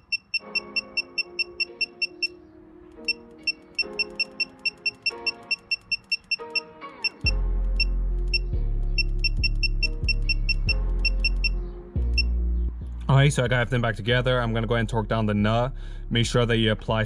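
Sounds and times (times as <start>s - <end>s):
high beeping tick: 0.0s - 2.4s, 3.0s - 7.3s, 9.0s - 11.6s
held chords: 0.0s - 12.8s.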